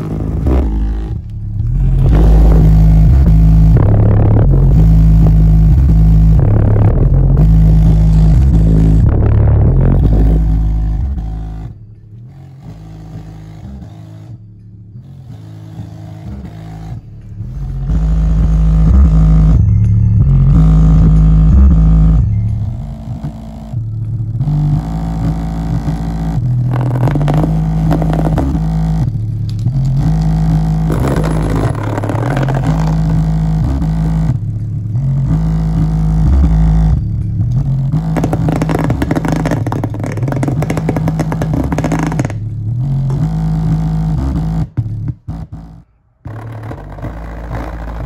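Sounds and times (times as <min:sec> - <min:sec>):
loud bass notes from woofer: 0:00.0 - 0:48.0
cardboard box buzzing and rattling: 0:24.8 - 0:29.1, 0:30.0 - 0:34.4, 0:37.9 - 0:42.4, 0:45.3 - 0:48.0.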